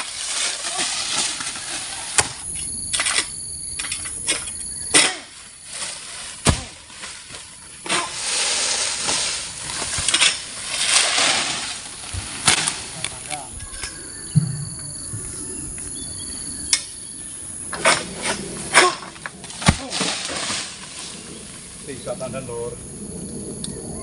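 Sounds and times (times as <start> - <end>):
sickle cracking and knocking: 0.0 - 13.4, 17.7 - 21.2
palm fronds rustling: 0.0 - 13.9, 17.7 - 22.7.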